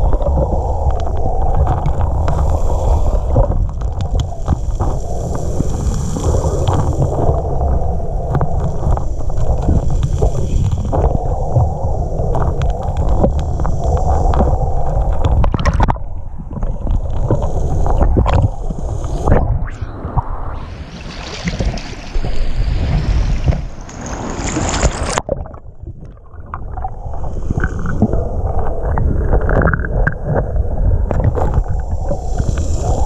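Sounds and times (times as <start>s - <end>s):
underwater churning rumble: 0.0s - 33.0s
pebbles clicking underwater: 6.2s - 18.8s, 21.0s - 30.5s.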